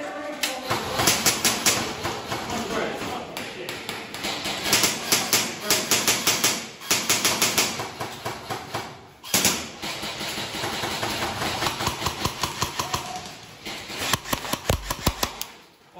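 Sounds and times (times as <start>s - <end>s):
airsoft rifles firing bursts: 0.6s - 2.6s, 4.0s - 15.6s.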